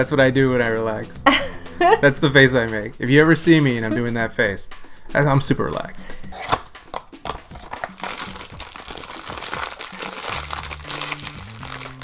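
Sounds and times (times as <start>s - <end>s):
foil wrapper crinkling: 7.6s - 12.0s.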